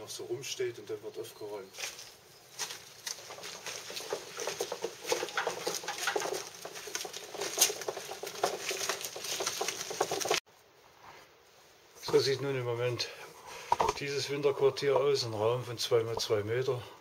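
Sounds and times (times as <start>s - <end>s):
footsteps on paved path: 1.7s - 10.4s
hand cart rattling over paving: 2.6s - 10.4s.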